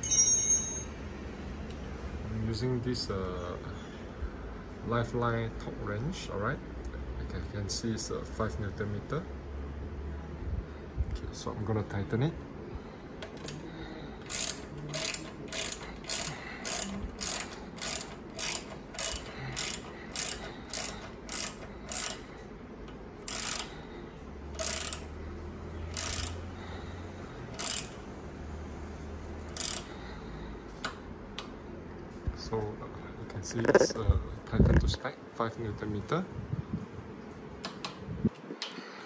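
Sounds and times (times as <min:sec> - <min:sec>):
torque wrench ratchet clicking: 0:14.2 - 0:22.3, 0:23.2 - 0:23.8, 0:24.6 - 0:25.1, 0:25.9 - 0:26.4, 0:27.5 - 0:28.0, 0:29.5 - 0:29.9.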